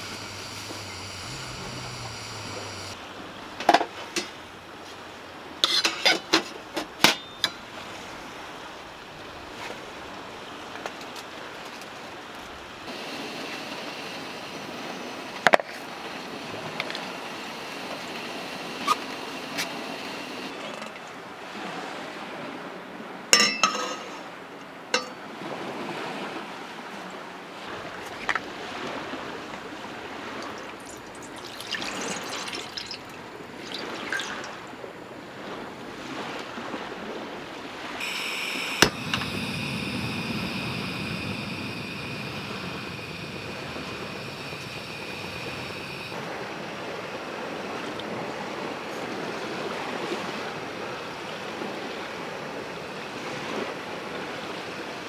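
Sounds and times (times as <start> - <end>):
gas burner hiss: 0.0 - 3.0, 12.9 - 20.5, 38.0 - 46.6
thin high whine: 0.0 - 3.0, 12.9 - 20.6, 30.4 - 34.8, 37.9 - 47.3
water poured into metal pot: 30.4 - 34.7.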